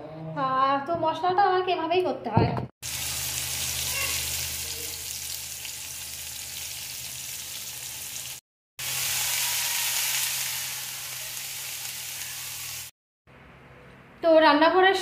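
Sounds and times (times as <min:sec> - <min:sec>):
oil sizzling in a pan: 0:02.8 - 0:12.9.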